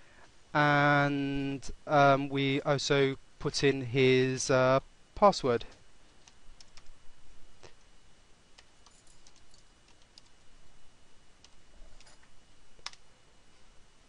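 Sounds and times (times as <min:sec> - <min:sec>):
keystrokes on a computer keyboard: 0:06.1 - 0:06.9, 0:08.6 - 0:10.4, 0:12.8 - 0:13.0.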